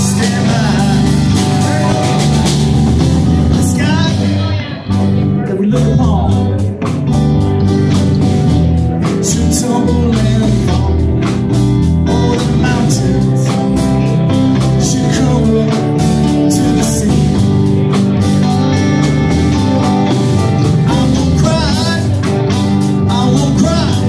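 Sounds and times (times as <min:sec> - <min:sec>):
drum kit beat: 0:00.0 - 0:24.0
electric guitars: 0:00.0 - 0:24.0
keyboard: 0:00.0 - 0:24.0.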